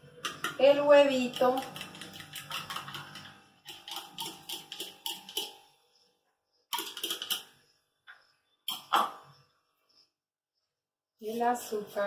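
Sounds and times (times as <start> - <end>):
spoon scraping and tapping cup: 0.2 - 5.6.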